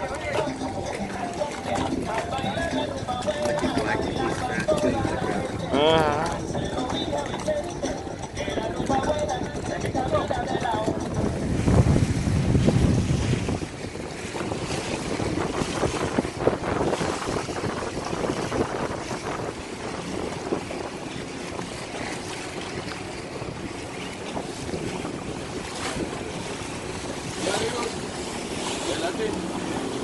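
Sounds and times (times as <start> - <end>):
splashing sea water: 0.0 - 30.0
wind buffeting microphone: 0.0 - 30.0.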